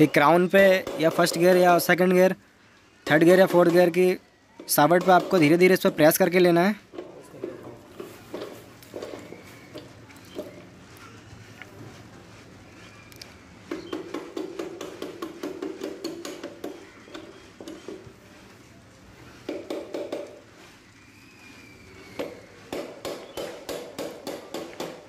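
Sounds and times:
plastic mallet tapping metal shafts: 3.1s - 7.6s.

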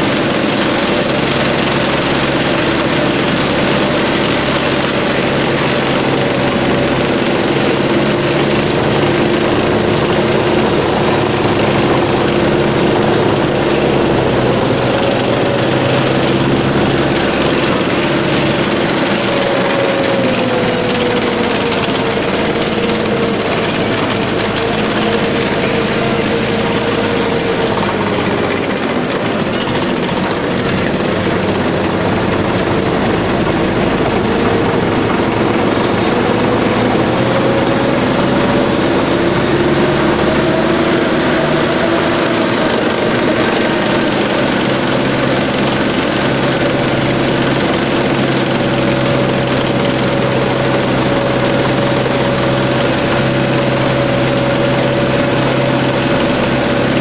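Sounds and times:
tank engine running: 0.0s - 57.0s.

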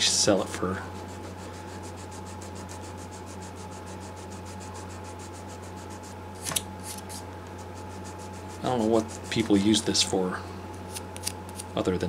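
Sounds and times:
sandpaper rasping strokes: 0.9s - 6.2s, 6.8s - 9.6s.

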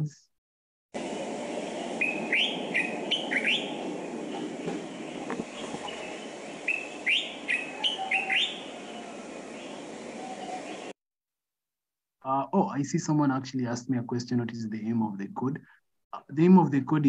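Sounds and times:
background hiss and rumble: 1.0s - 10.9s, 12.5s - 15.6s
bulbul song: 1.7s - 10.9s.

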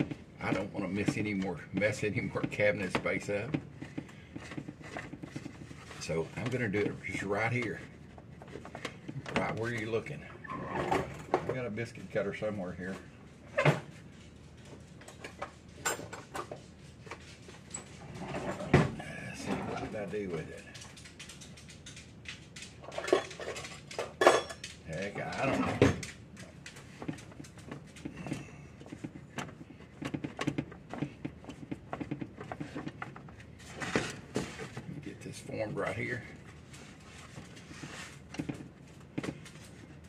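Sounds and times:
hands patting dough in wooden bowl: 0.0s - 10.2s, 24.7s - 40.0s
soft taps and rustles: 0.0s - 10.2s, 26.0s - 40.0s.

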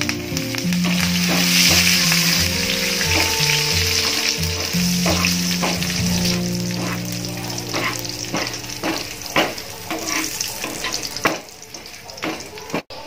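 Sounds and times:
spices sizzling in hot oil: 0.0s - 13.0s
wire skimmer scraping pan: 4.0s - 11.4s.

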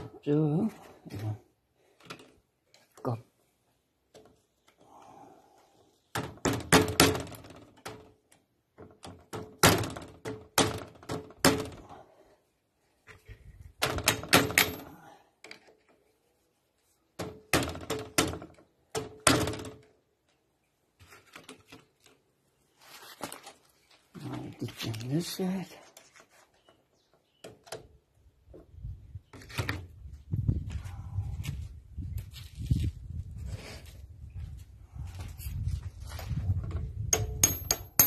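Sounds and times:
metal tool tapping on metal: 37.1s - 38.0s.

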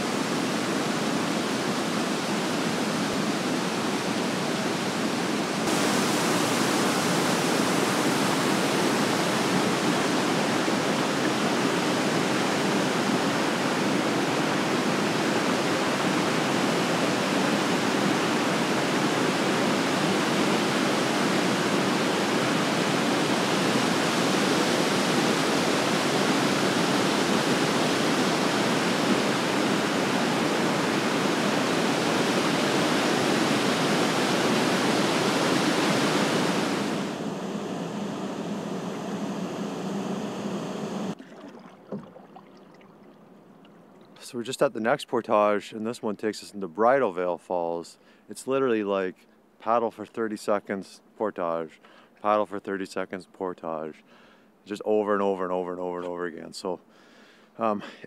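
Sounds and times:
waterfall rushing: 0.0s - 43.4s.

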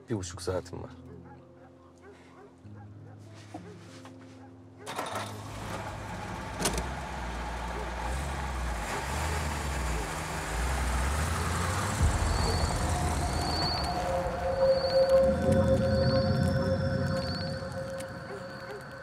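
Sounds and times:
truck engine rumbling: 4.9s - 19.0s.

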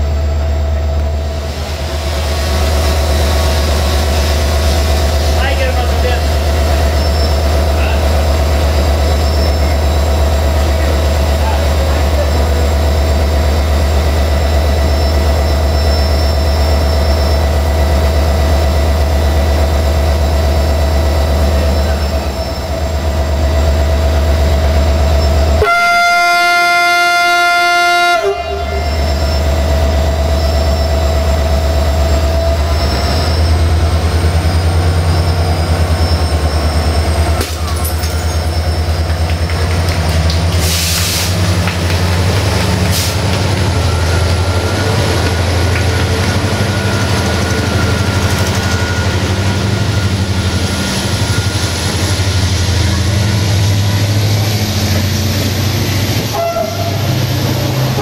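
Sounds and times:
locomotive engine rumbling: 0.0s - 58.0s
train horn: 25.6s - 29.0s, 56.3s - 57.0s.

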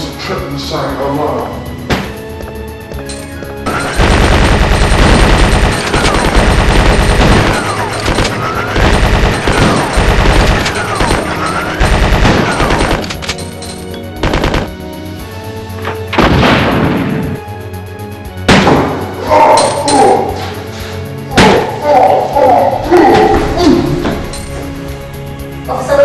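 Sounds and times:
rapid automatic gunfire: 3.7s - 13.2s, 14.2s - 14.8s.

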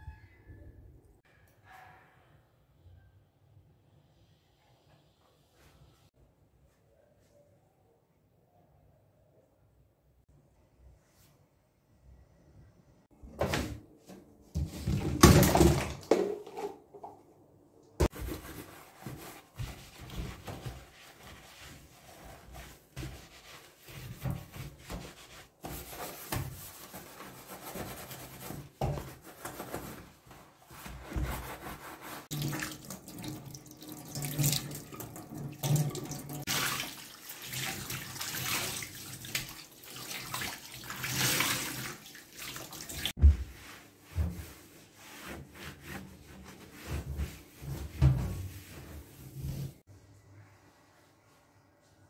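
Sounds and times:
knocks and handling sounds: 13.4s - 20.9s
sponge scrubbing a metal sink: 18.0s - 49.8s
water splashing into metal sink: 32.3s - 43.1s.

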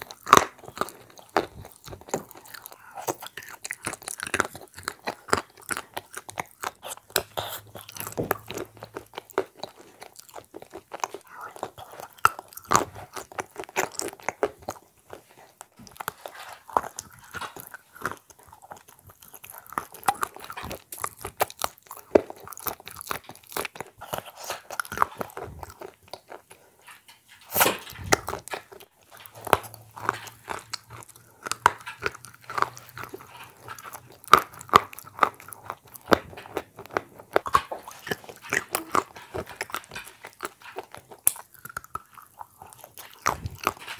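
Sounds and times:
biting and chewing cookies: 0.0s - 43.9s.

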